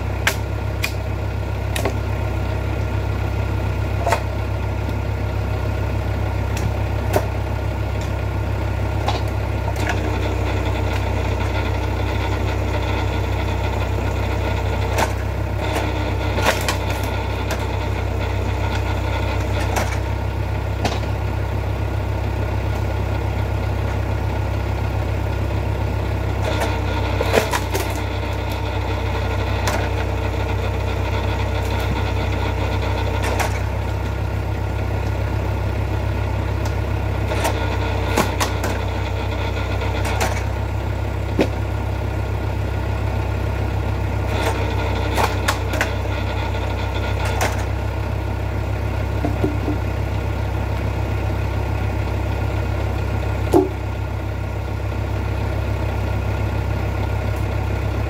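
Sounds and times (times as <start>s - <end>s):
log splitter engine running: 0.0s - 58.0s
wood splitting with sharp cracks: 0.2s - 2.2s, 3.8s - 5.0s, 6.4s - 8.3s, 8.9s - 10.2s, 14.7s - 18.0s, 18.6s - 20.2s, 20.8s - 21.2s, 26.4s - 34.2s, 36.5s - 41.8s, 44.3s - 46.3s, 47.1s - 47.8s, 53.5s - 53.9s.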